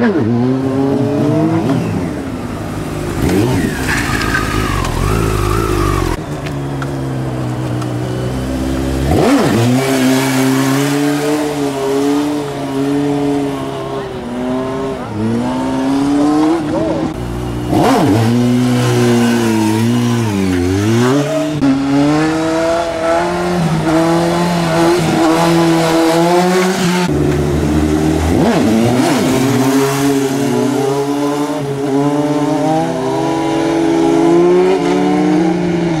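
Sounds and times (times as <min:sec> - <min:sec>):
motorcycle engine revving: 0:00.0 - 0:06.2, 0:07.1 - 0:36.0.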